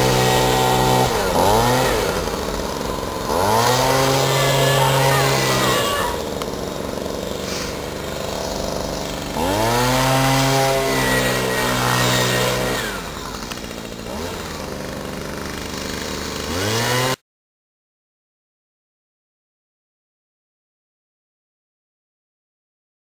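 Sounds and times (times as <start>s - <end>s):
leaf blower revving: 0.0s - 17.2s.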